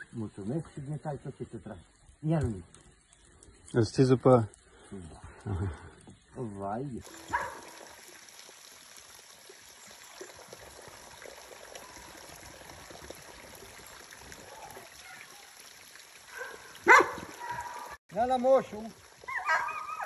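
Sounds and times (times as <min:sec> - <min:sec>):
water trickling into pool: 0:00.0 - 0:20.0.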